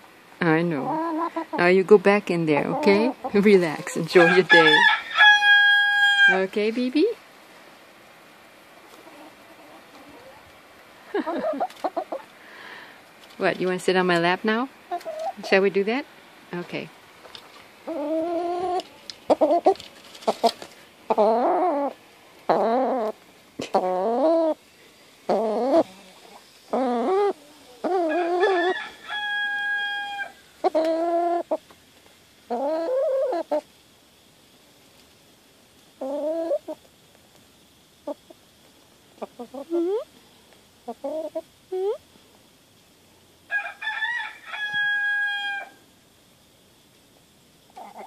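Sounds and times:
hen calling: 17.8s - 24.6s, 25.3s - 31.6s.

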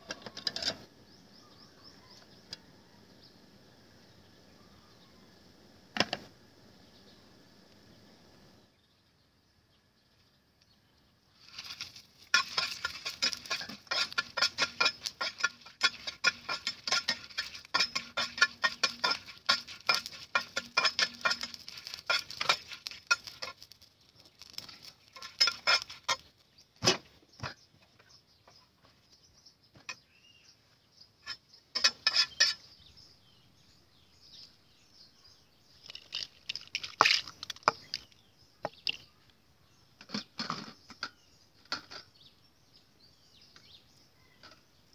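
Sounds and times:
metal spatula scraping pan: 11.4s - 23.6s, 24.2s - 26.3s, 31.2s - 32.7s
chillies crackling in hot oil: 11.4s - 26.7s, 35.7s - 38.3s.

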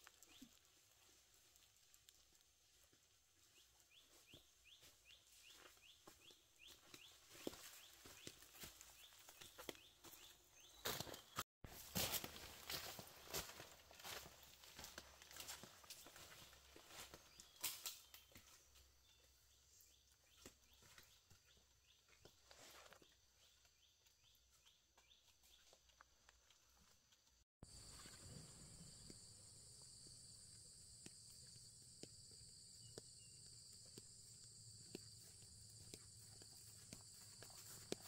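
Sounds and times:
footsteps on dirt path: 3.5s - 19.2s, 28.8s - 38.0s
footsteps on dry leaves and stones: 4.0s - 18.7s, 32.9s - 38.0s.

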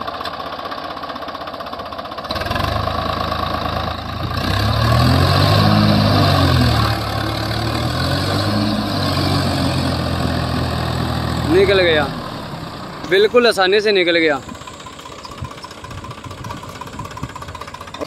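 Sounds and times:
tractor diesel engine revving: 0.0s - 18.0s.

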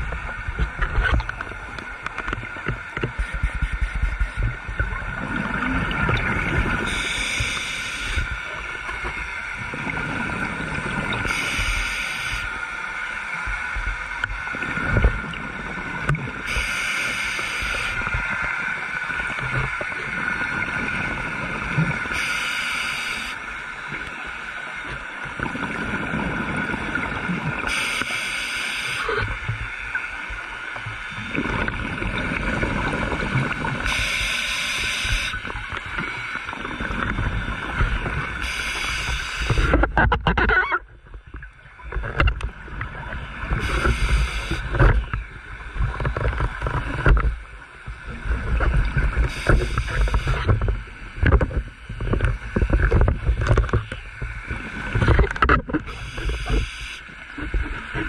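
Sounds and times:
bubbles rumbling underwater: 0.0s - 7.5s, 25.2s - 27.6s, 30.8s - 33.8s
faint steady hum: 0.0s - 58.0s.

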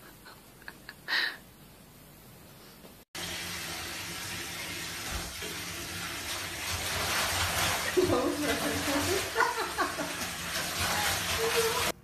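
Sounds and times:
tap water running into bathtub: 3.2s - 12.0s.

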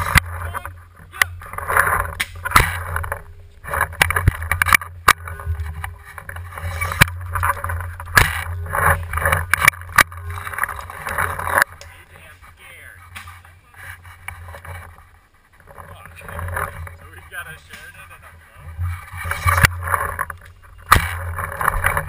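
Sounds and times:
sharp clicks and knocks: 0.0s - 12.4s, 18.7s - 22.0s.

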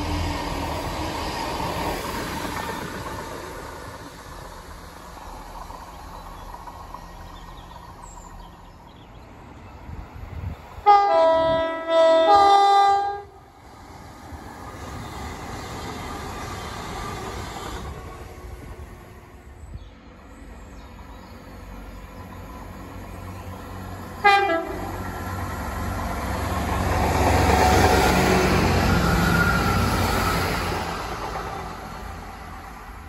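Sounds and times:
train rumbling past: 0.0s - 33.0s
two-tone train horn: 10.8s - 13.4s, 24.2s - 25.0s.

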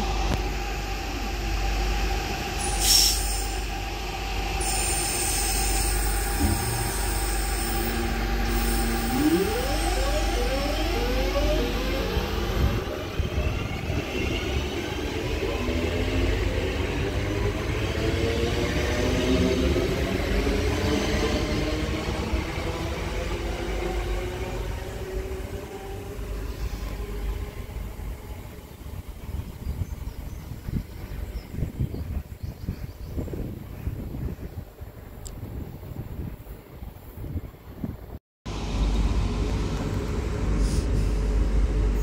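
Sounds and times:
train traction motors whining: 0.0s - 28.5s
train wheels rumbling: 0.0s - 32.4s
short sharp hiss: 2.6s - 3.6s.

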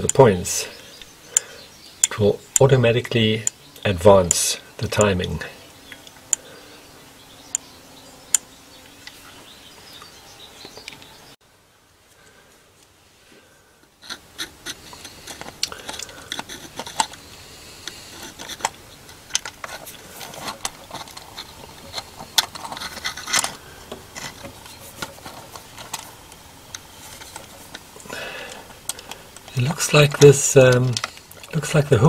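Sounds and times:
fingers scraping on metal parts: 14.0s - 26.2s
small metal clicks: 14.0s - 27.9s, 28.5s - 31.6s.

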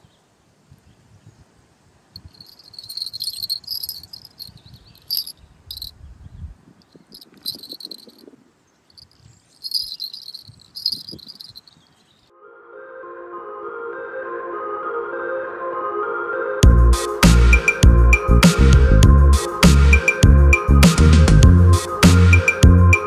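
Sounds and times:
small jingle bells ringing: 2.2s - 5.9s, 7.2s - 8.3s, 8.9s - 11.8s
soft handling rustle: 2.2s - 5.9s, 6.9s - 12.2s.

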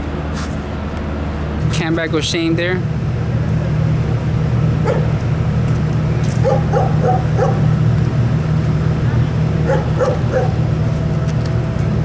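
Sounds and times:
steady low hum: 0.0s - 12.0s
dog yapping: 6.4s - 7.6s, 9.6s - 10.6s.

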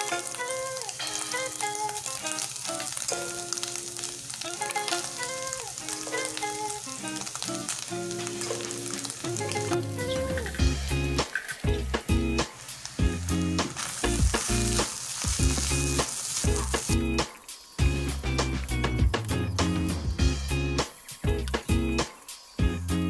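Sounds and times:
background music: 0.0s - 23.0s
oil sizzling in a pan: 0.0s - 23.0s.

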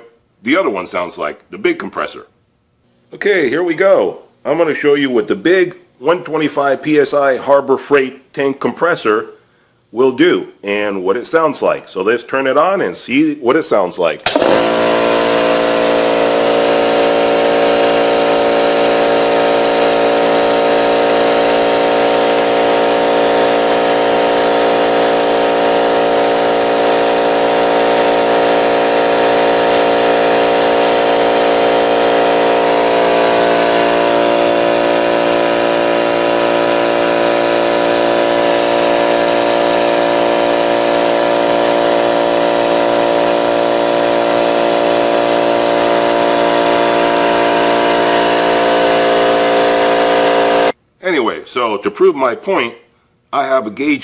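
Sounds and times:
air compressor running: 14.2s - 50.8s.

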